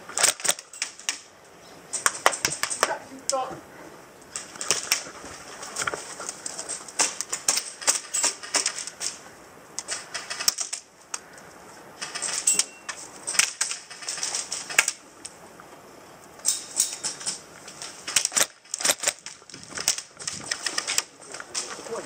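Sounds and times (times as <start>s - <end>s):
airsoft guns firing bursts: 9.9s - 10.7s.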